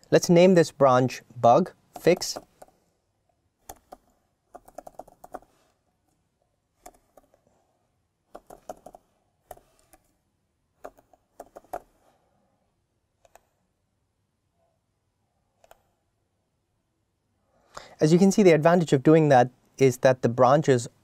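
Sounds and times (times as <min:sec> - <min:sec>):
keyboard typing: 0:01.9 - 0:02.8, 0:03.6 - 0:05.6, 0:06.8 - 0:07.4, 0:08.3 - 0:10.1, 0:10.8 - 0:12.0.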